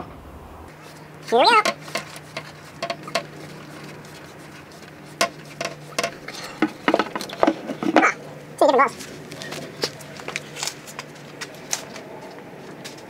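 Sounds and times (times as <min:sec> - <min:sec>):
tools clicking and clinking: 0:01.6 - 0:03.3, 0:05.2 - 0:07.5.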